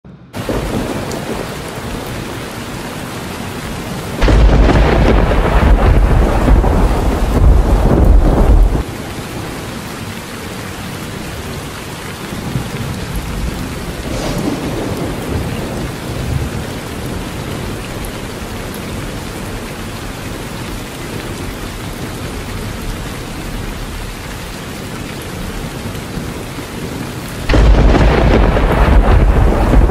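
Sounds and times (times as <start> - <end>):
heavy rain on trees: 0.2 - 29.9
loud deep rumble: 4.2 - 8.8, 27.5 - 29.9.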